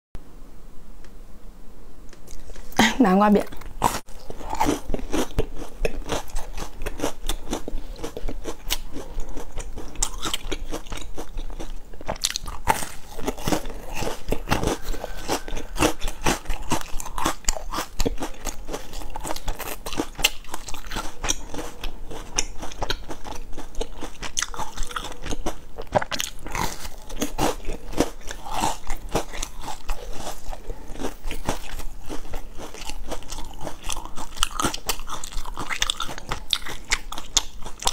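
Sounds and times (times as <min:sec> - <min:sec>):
biscuit crunching: 0:03.4 - 0:37.9.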